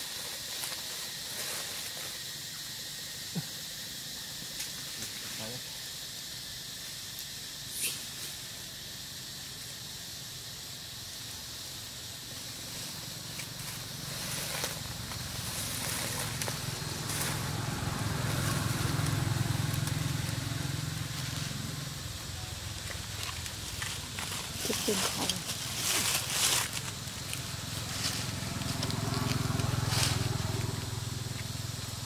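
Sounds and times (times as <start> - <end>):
steady high hiss: 0.0 - 32.0
passing vehicle engine rumble: 12.8 - 32.0.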